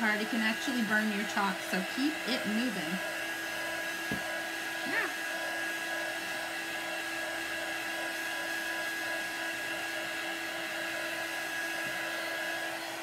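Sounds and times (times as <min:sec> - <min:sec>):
heat tool motor whine: 0:00.0 - 0:13.0.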